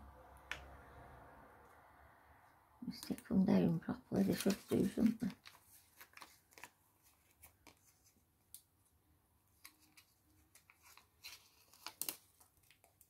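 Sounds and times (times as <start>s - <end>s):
paper rustling: 4.1s - 8.6s, 9.5s - 13.0s.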